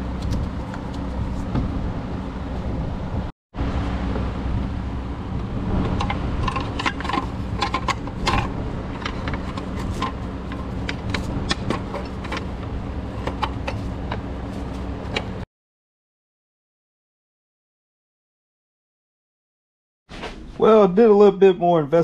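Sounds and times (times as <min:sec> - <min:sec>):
steady low hum: 0:00.0 - 0:15.5
metal heat shield clinking: 0:05.9 - 0:15.4.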